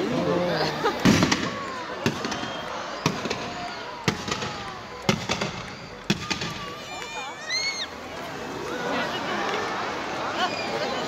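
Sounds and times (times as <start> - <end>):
fireworks bangs: 0.8 - 7.2.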